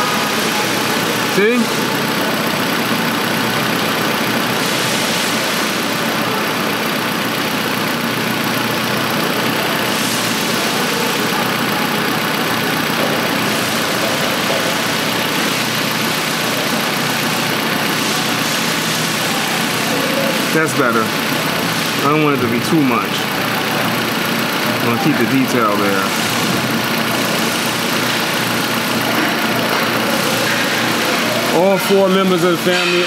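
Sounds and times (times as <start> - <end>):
car engine idling: 0.0 - 33.0.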